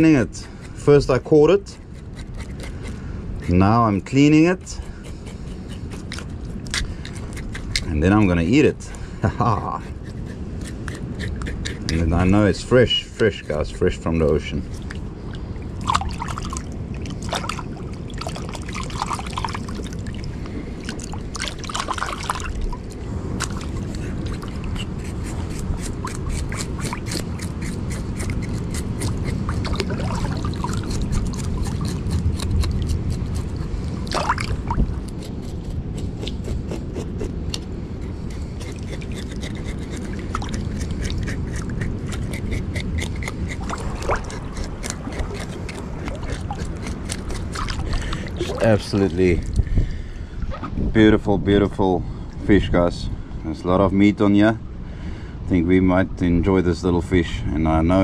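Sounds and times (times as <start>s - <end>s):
knife scraping fish scales: 0.0s - 8.6s, 9.4s - 14.9s, 23.4s - 34.0s, 35.0s - 49.2s
steady low rumble: 0.0s - 58.0s
trickling water: 14.8s - 24.8s, 28.2s - 32.9s, 34.0s - 35.0s, 43.0s - 49.8s.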